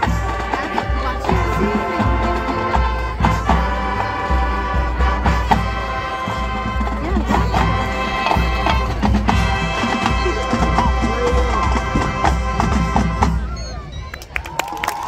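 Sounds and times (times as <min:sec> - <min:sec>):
wind instruments holding chords: 0:00.0 - 0:14.1.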